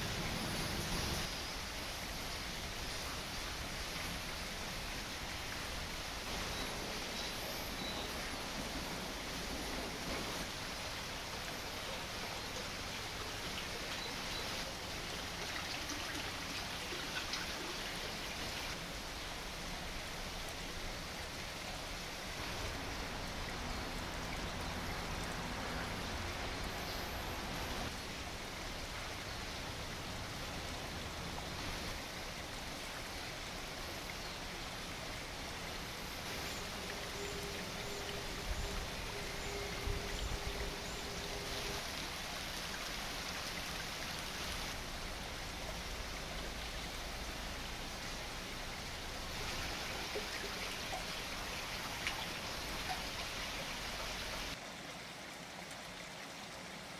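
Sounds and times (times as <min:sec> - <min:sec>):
stream water rushing: 0:00.0 - 0:56.9.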